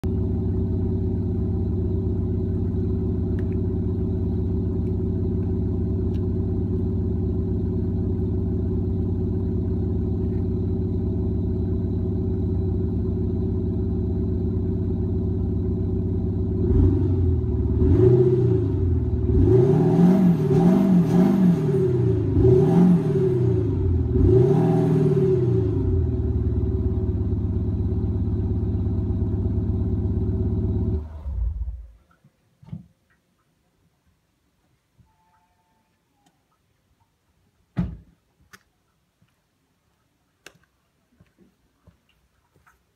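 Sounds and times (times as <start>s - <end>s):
diesel engine idling and revving: 0.0s - 32.0s.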